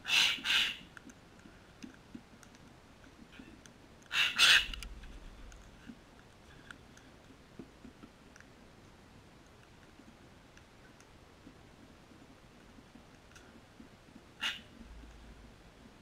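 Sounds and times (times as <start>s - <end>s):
cockatoo harsh squawks: 0.0s - 0.8s, 4.1s - 4.8s, 14.4s - 14.7s
beaks clicking on pavers: 0.0s - 16.0s.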